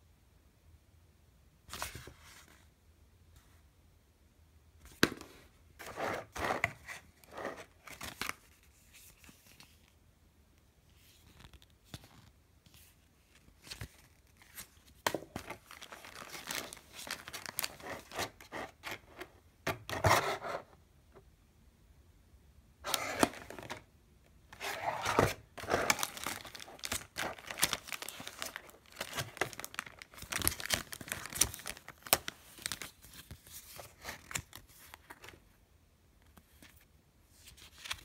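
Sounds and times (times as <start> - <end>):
paper and plastic packaging rustling: 5.8 - 10.0, 11.0 - 20.6, 22.8 - 23.9, 24.5 - 35.5.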